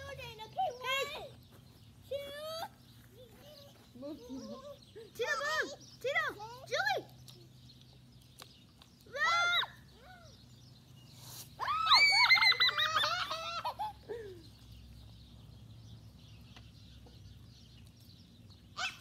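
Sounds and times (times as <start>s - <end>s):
children shrieking and squealing: 9.1s - 10.3s, 11.6s - 14.2s, 18.8s - 19.0s.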